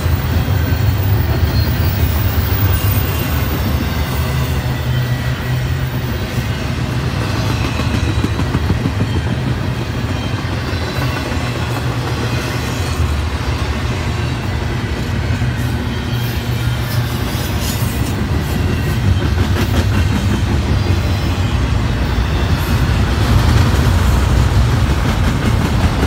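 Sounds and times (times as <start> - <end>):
train cars rumbling over rails: 0.0 - 26.0.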